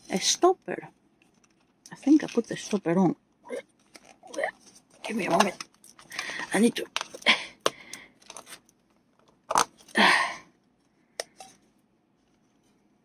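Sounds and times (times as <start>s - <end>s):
plastic tools clicking: 5.0s - 9.9s.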